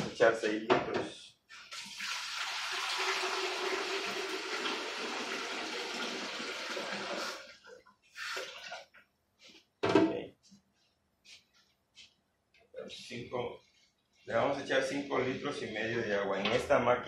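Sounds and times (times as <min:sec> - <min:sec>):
water pouring into steel bowl: 0:01.7 - 0:07.6.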